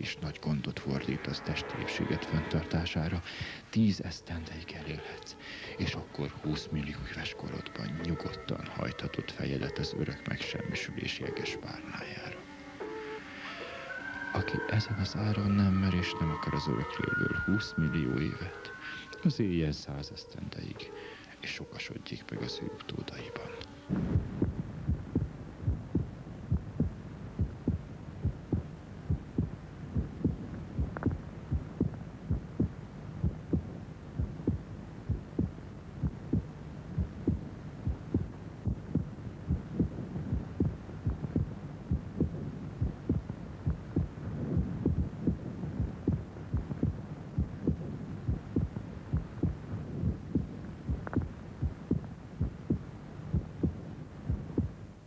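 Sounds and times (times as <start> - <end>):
low even hum: 0.0 - 55.0
heartbeat thudding: 23.9 - 55.0.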